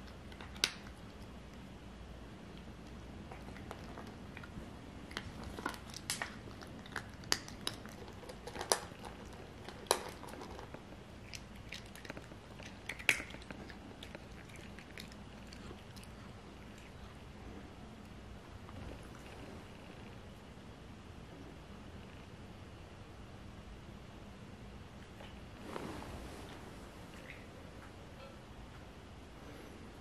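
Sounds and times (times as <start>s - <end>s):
cat crunching dry kibble: 0.0s - 1.6s, 2.8s - 17.1s.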